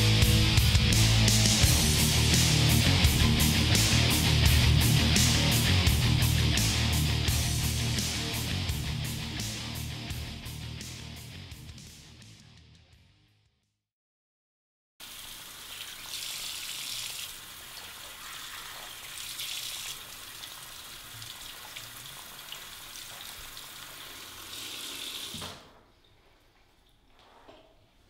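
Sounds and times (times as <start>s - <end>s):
tap water running into sink: 15.0s - 25.6s.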